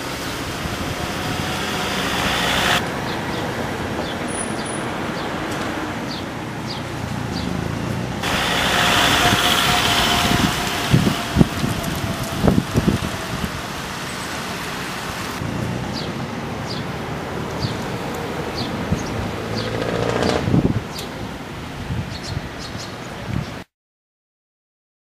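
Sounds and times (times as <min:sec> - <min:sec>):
cars passing on street: 0:00.0 - 0:23.5.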